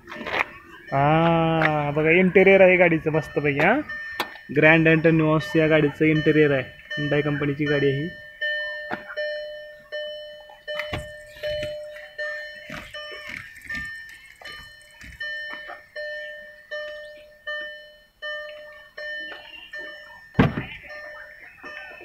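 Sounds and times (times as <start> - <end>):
car warning chime dinging: 0.0 - 22.0
thump: 20.4 - 20.8.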